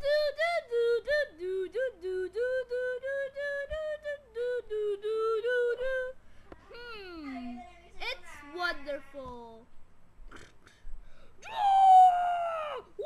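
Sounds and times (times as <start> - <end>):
high-pitched voice singing: 0.0 - 6.2.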